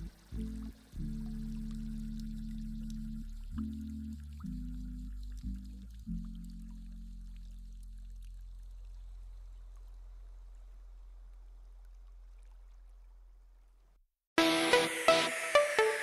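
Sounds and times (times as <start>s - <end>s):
background music low held note: 0.0s - 8.6s
electronic music with steady beat: 14.4s - 16.0s.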